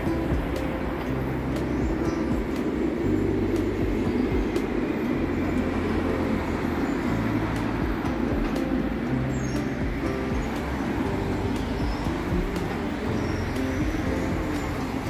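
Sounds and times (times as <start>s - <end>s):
city road traffic rumble: 0.0s - 15.0s.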